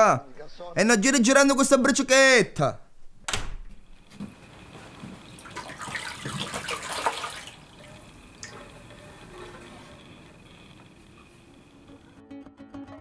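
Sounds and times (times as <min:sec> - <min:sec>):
water sloshing in a wooden bowl: 0:04.3 - 0:11.2
water dripping and trickling: 0:04.3 - 0:11.4.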